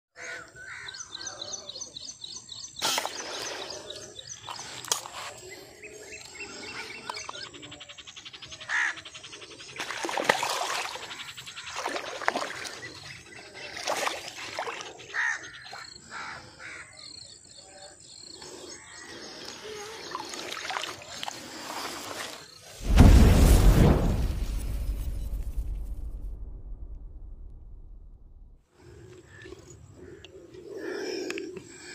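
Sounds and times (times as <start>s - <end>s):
small birds chirping: 0.2s - 22.8s
fish splashing in water: 9.8s - 15.0s.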